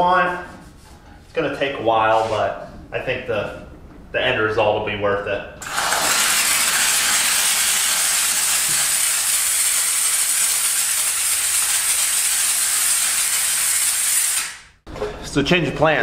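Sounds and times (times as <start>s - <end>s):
steam cleaner hissing: 5.6s - 14.7s.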